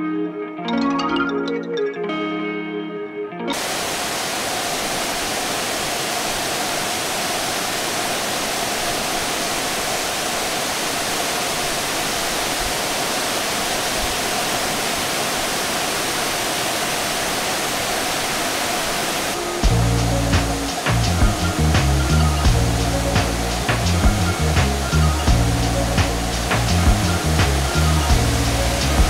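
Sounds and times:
guitar music: 0.0s - 3.6s, 19.4s - 29.0s
waterfall roaring: 3.5s - 29.0s.

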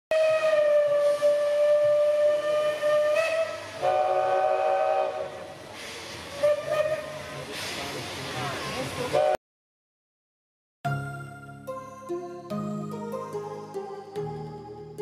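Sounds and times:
steam locomotive whistle: 0.1s - 5.7s, 6.3s - 7.5s, 9.1s - 9.4s
hissing steam: 0.8s - 9.3s.

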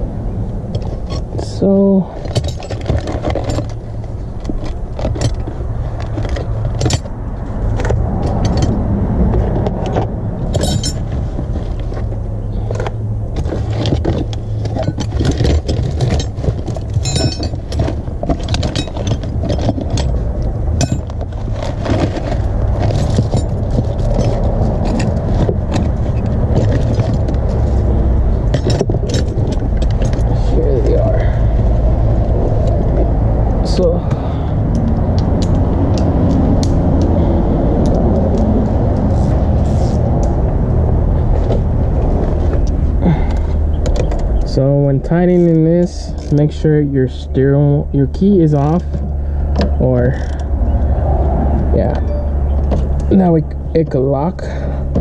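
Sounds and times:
steady low rumble: 0.0s - 55.0s
metal tools clinking: 2.2s - 3.8s, 4.4s - 7.1s, 8.2s - 8.8s, 10.5s - 11.2s, 12.5s - 27.7s, 28.5s - 31.1s, 51.9s - 53.2s.

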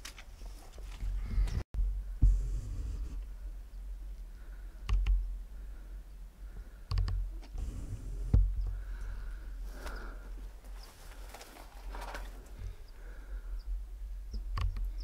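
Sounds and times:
wind rumble on microphone: 1.0s - 3.5s.

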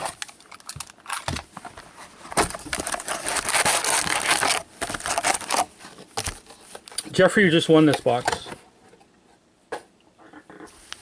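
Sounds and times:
wrapper and cardboard crinkling: 0.0s - 7.2s.

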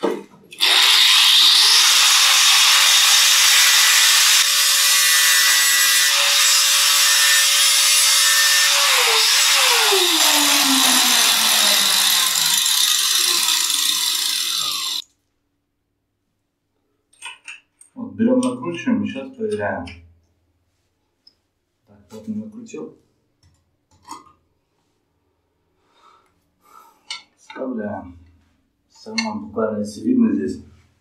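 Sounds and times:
angle grinder cutting metal: 0.6s - 15.0s.

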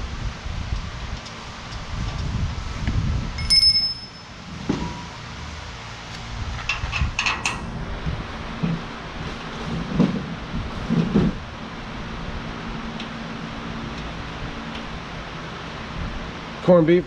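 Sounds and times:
low rumble of shop noise: 0.0s - 17.0s
metallic ping: 3.4s - 5.2s.

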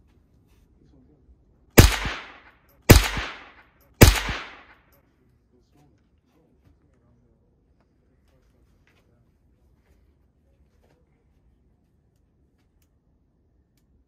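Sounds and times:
gunshots with echo: 1.8s - 4.8s.

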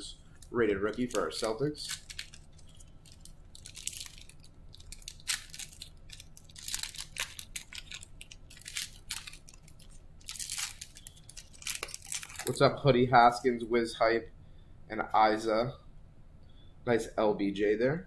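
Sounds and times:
foil wrapper crinkling: 0.3s - 12.7s.

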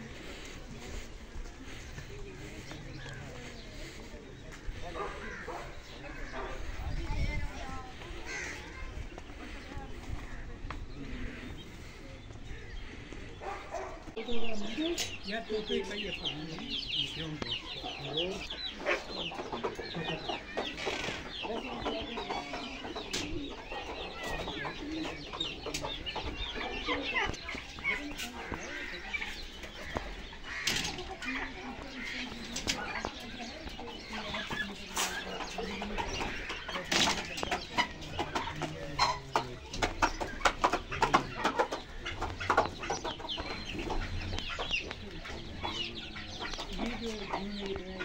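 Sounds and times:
birds chirping: 0.0s - 48.0s
fowl clucking: 17.8s - 48.0s.

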